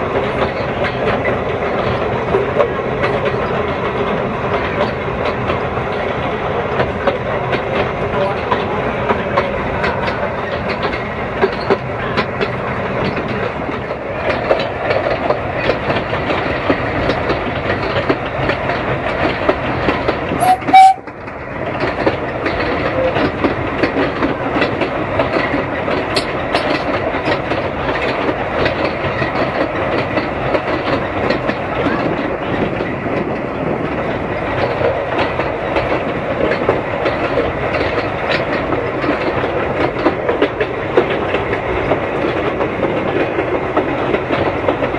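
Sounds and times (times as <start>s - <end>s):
steam train running noise: 0.0s - 44.9s
wheels clattering over rail joints: 0.0s - 44.9s.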